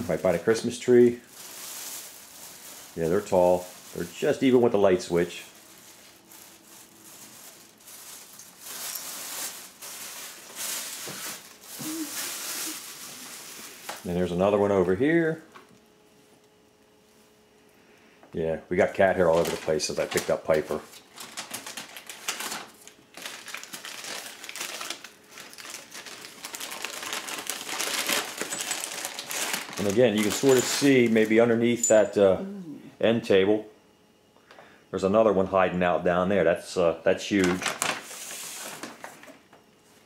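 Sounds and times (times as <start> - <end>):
crinkling and rustling: 0.0 - 14.3, 19.0 - 32.2, 37.3 - 39.7.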